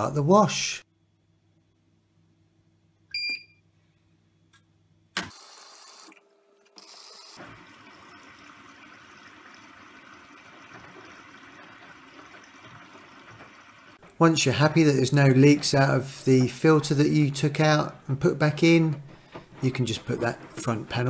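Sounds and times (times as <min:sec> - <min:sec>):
washing machine beep: 0:03.1 - 0:03.6
water rushing into drum: 0:07.4 - 0:16.7.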